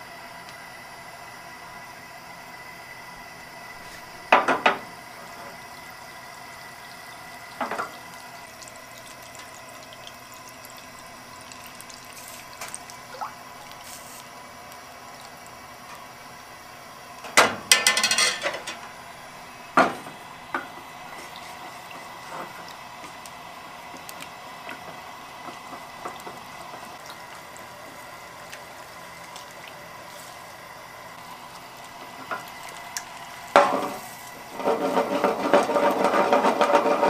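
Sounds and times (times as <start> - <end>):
utensils knocking against a pan: 17.4 - 18.8.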